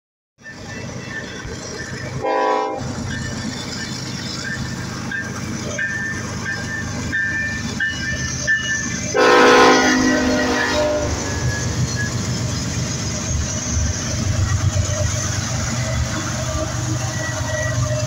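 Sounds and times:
crossing bell dinging: 0:00.4 - 0:18.0
train rumbling: 0:00.4 - 0:18.0
locomotive horn blasts: 0:02.2 - 0:03.0, 0:09.1 - 0:11.5.

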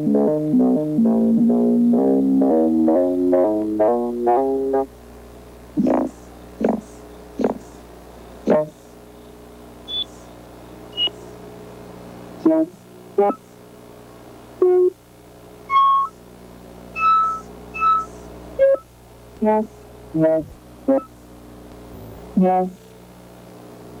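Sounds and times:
steady low hum: 0:00.0 - 0:24.0
synthesizer bleeps: 0:09.9 - 0:10.1, 0:11.0 - 0:11.2, 0:15.7 - 0:16.1, 0:17.0 - 0:18.8, 0:20.3 - 0:21.1.

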